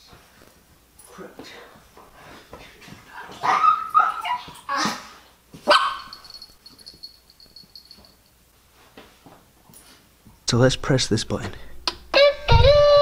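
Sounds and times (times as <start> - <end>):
dog barking: 3.4 - 5.0, 5.6 - 6.2.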